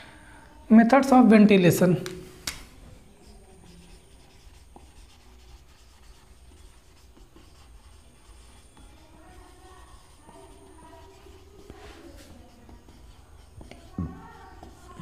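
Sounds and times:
marker writing on whiteboard: 2.4s - 15.0s.

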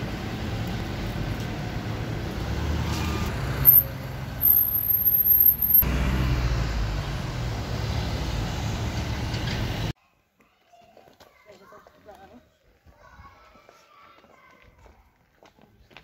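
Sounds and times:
street traffic rumble: 0.0s - 9.9s.

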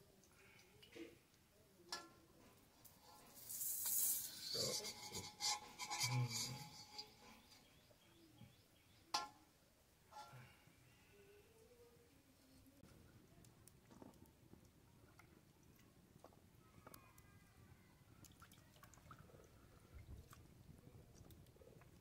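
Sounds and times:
metal spatula scraping wok: 2.4s - 8.0s.

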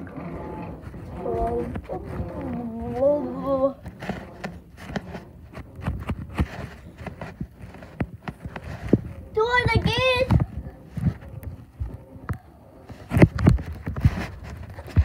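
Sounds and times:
child humming: 1.1s - 3.8s.

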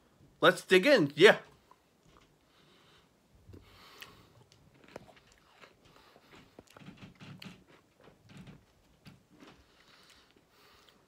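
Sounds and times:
chewing ice cream: 3.5s - 8.1s.

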